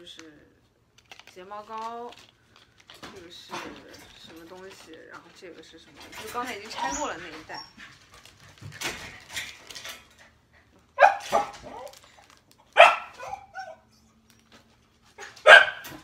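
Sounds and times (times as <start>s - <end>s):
plastic packaging crinkling: 0.0s - 7.4s, 11.0s - 15.4s
dog barking: 11.0s - 11.9s, 12.7s - 13.8s, 15.2s - 16.0s.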